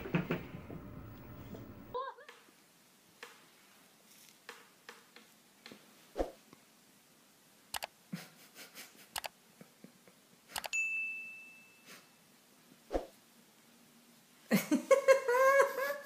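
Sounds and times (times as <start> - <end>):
bright bell ding: 10.7 - 12.0.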